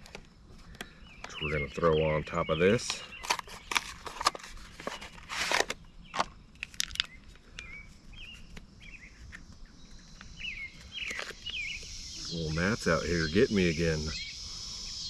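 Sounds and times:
bird chirping: 0.0 - 15.0
plastic packaging crinkling: 3.1 - 7.2.

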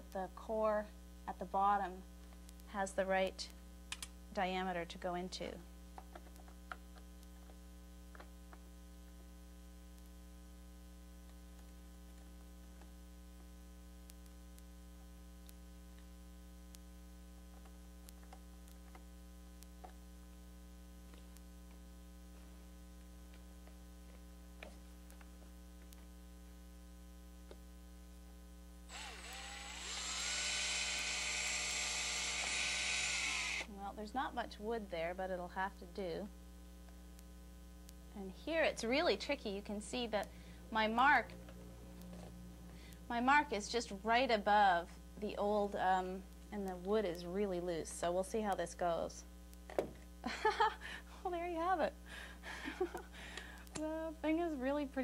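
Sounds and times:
low electrical hum: 0.0 - 55.0
cordless drill drilling: 28.9 - 33.7.

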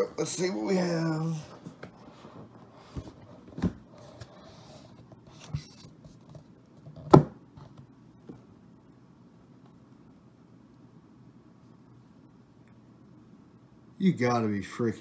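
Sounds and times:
sharp knocks on box: 7.0 - 7.4.

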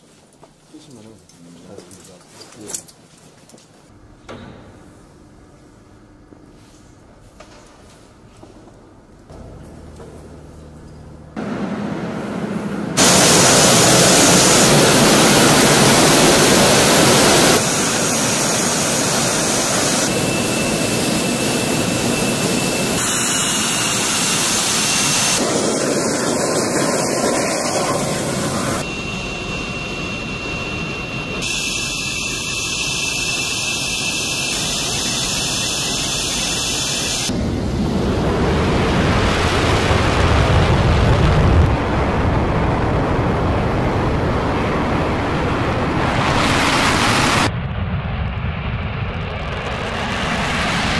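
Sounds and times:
jet engine rushing and whining: 11.4 - 50.9.

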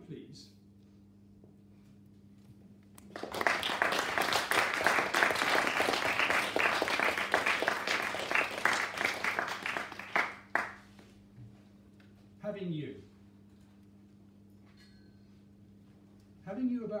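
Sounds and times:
small audience clapping: 3.0 - 11.2.

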